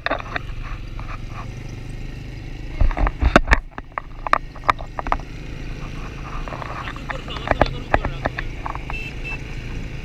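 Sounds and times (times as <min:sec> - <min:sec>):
quad bike engine rumbling: 0:00.0 - 0:10.0
sharp knocks and thumps: 0:02.7 - 0:09.0.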